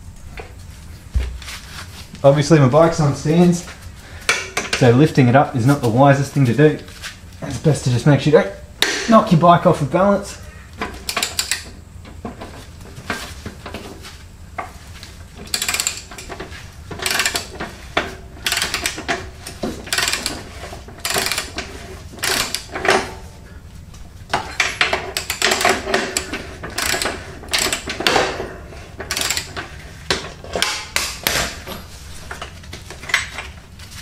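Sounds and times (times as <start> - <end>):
socket wrench ratchet clicking: 11.1 - 11.6, 15.5 - 16.3, 17.0 - 17.5, 18.4 - 19.0, 19.9 - 20.4, 21.0 - 21.6, 22.2 - 22.7, 25.2 - 28.2, 29.1 - 29.5.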